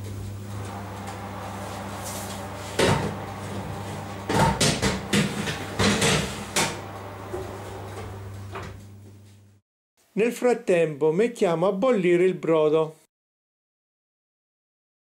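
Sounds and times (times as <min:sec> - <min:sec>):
oven low hum: 0:00.0 - 0:09.6
baking tray knocks and clanks: 0:02.8 - 0:03.2, 0:04.3 - 0:06.8.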